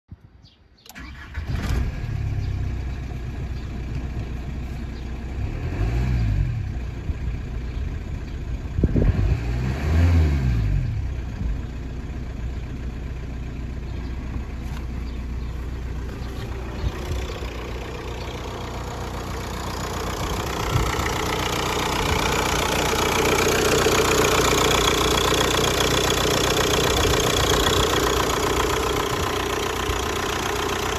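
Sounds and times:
diesel engine starting and revving: 0:00.8 - 0:30.9
diesel engine idling: 0:00.9 - 0:09.0, 0:10.8 - 0:30.9.

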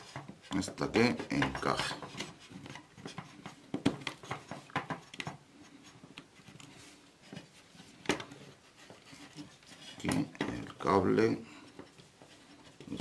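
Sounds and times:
plastic parts clicking and knocking: 0:00.0 - 0:05.4.

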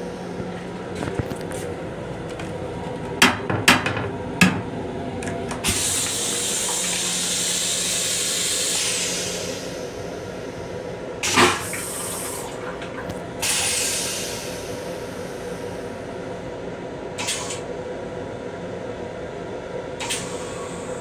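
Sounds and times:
pump hum: 0:00.0 - 0:16.6
toilet flush clack: 0:03.2 - 0:09.1, 0:11.2 - 0:14.3.

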